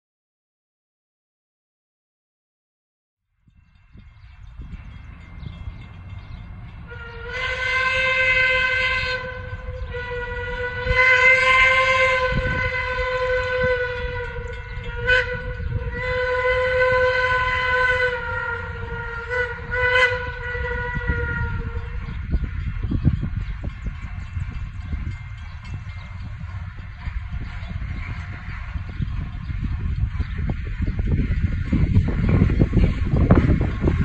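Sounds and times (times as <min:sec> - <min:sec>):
train rumbling: 0:03.3 - 0:34.0
steam locomotive whistle: 0:06.8 - 0:29.2.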